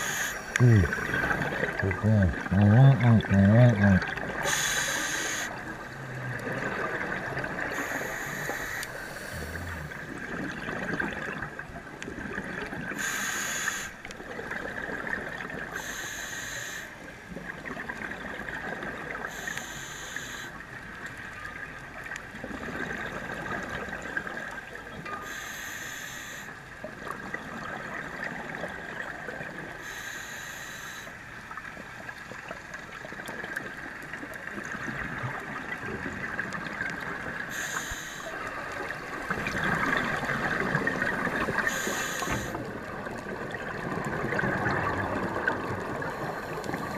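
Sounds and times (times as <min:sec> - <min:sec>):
exhaled bubbles rushing underwater: 0:00.0 - 0:13.2, 0:14.1 - 0:15.9, 0:17.3 - 0:19.4, 0:20.8 - 0:25.0, 0:31.5 - 0:46.9.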